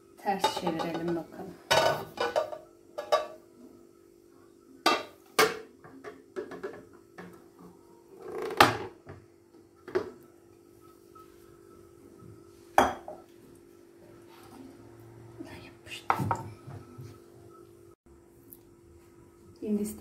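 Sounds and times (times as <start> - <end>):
glass dishes clinking on stone countertop: 0.4 - 3.4, 4.9 - 6.8, 12.8 - 13.3.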